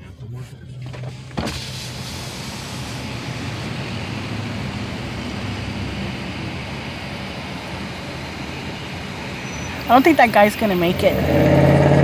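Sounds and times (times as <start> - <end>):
car engine hum: 0.0 - 12.0
rain hiss on street: 1.4 - 10.9.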